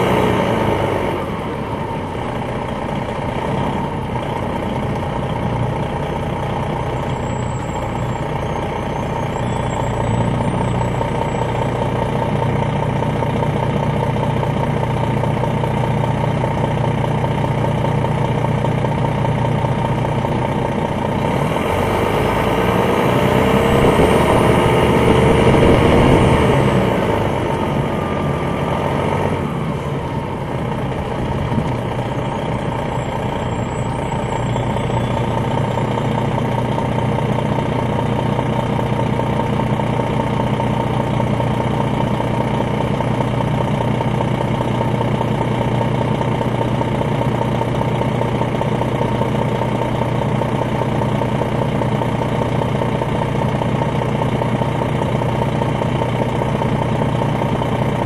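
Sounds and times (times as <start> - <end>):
diesel bus engine running: 0.0 - 58.0
steady whine: 23.6 - 27.6.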